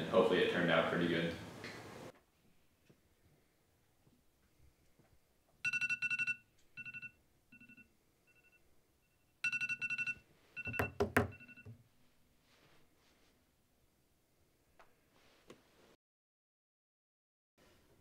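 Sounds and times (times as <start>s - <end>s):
phone alarm beeping: 5.6s - 11.8s
sharp knocks: 10.7s - 11.4s.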